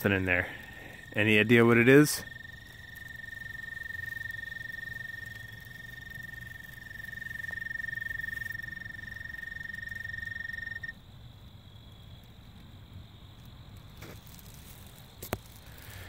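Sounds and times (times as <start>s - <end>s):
high-pitched insect trill: 0.0s - 12.0s.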